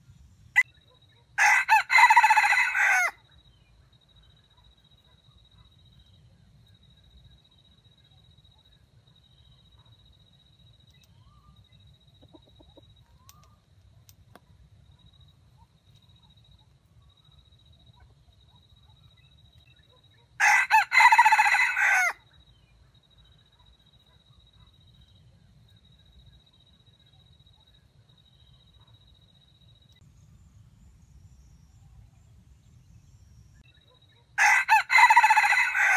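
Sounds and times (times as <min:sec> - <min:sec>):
rooster crowing: 0:01.4 - 0:03.2, 0:20.4 - 0:22.2, 0:34.4 - 0:35.9.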